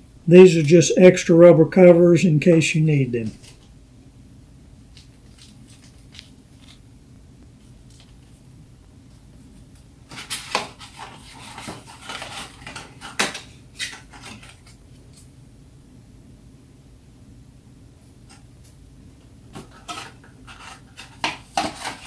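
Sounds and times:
packaging clicks taps and rustles: 10.1 - 15.2, 19.5 - 22.0.

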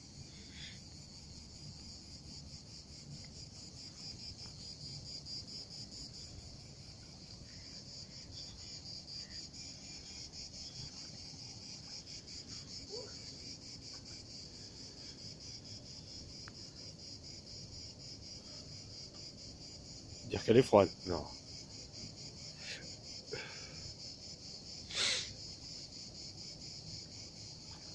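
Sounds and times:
insect buzzing trill: 21.3 - 27.9.

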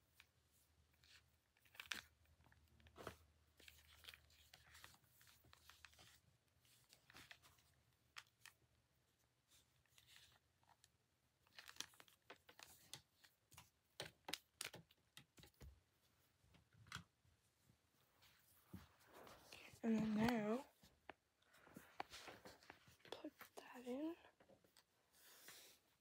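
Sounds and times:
small clicks of objects handled: 9.9 - 15.7
faint rustling: 17.4 - 26.0.

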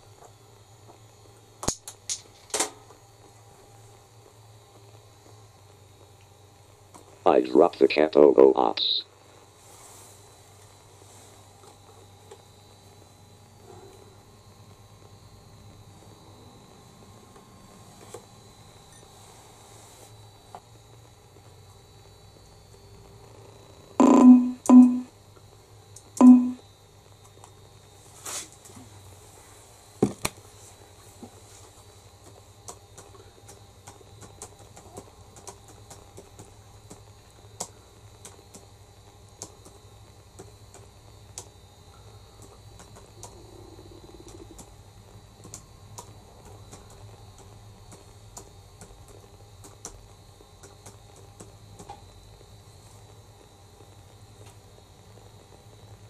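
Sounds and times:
low steady hum: 0.0 - 56.0
faint small clicks and ticks: 1.6 - 5.4, 6.1 - 7.2, 25.3 - 26.2, 27.0 - 28.8, 31.2 - 56.0.

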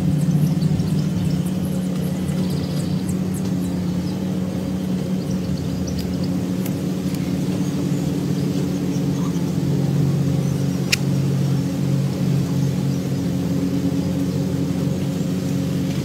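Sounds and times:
low mechanical hum: 0.0 - 16.0
sharp high click: 10.9 - 11.1.

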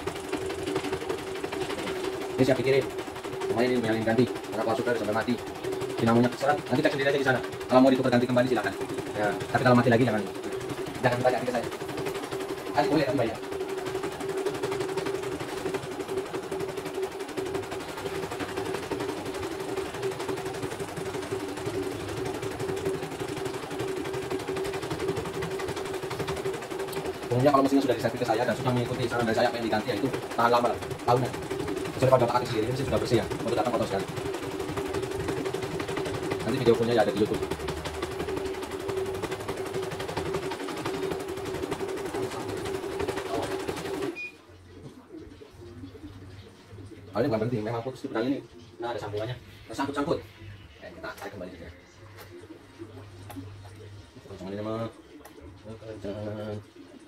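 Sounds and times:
embroidery machine stitching: 0.0 - 44.3.

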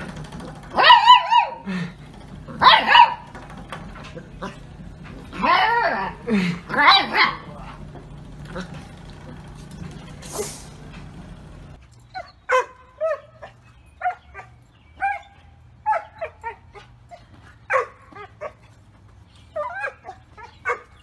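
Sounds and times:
dog barking in high yips: 0.7 - 1.6, 2.6 - 3.3, 5.4 - 7.5, 12.1 - 16.8.

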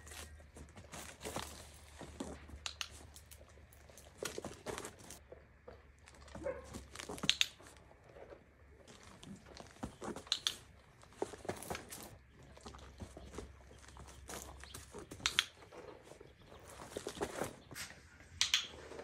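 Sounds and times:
scuffs crunches and clicks: 0.0 - 5.2, 8.8 - 15.9, 16.5 - 17.8.

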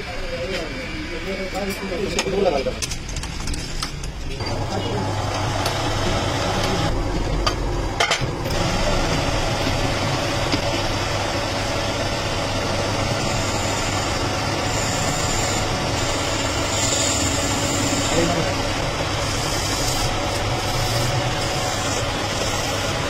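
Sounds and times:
lathe chuck spinning hum: 4.5 - 23.0
thin high whine: 12.7 - 23.0.

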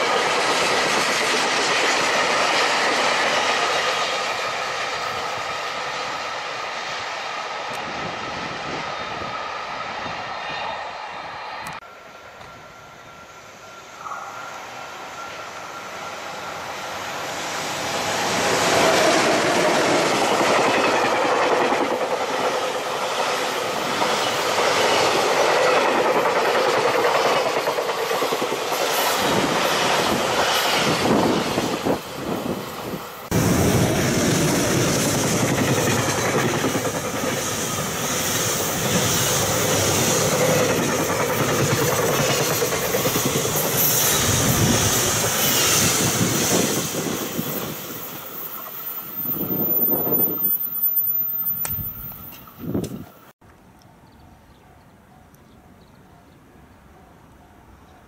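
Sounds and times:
electric locomotive passing: 0.0 - 58.0
train wheels clacking over rail joints: 18.2 - 31.0, 33.7 - 48.8.

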